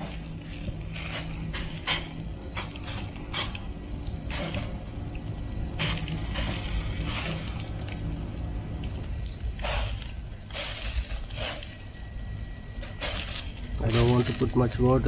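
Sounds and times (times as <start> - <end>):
spray bottle hissing: 1.0 - 3.6, 4.3 - 4.7, 5.8 - 7.6, 9.6 - 11.8, 12.8 - 14.3.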